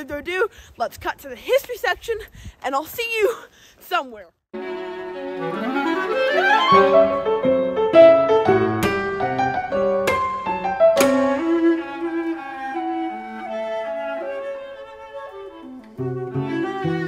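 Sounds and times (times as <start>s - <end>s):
instrumental music with bowed strings: 4.5s - 17.0s.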